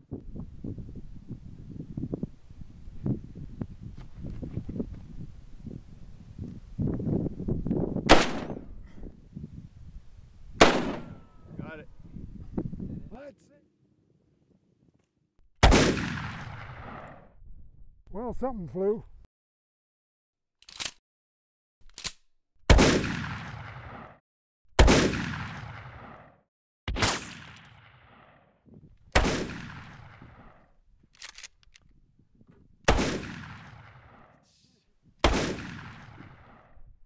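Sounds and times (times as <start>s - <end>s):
shotgun shots with echo: 8.1s - 8.7s, 10.6s - 11.2s, 15.6s - 17.2s, 22.7s - 24.2s, 24.8s - 26.3s, 26.9s - 28.4s, 29.2s - 30.6s, 32.9s - 34.3s, 35.2s - 36.7s
short clicks: 20.6s - 21.0s.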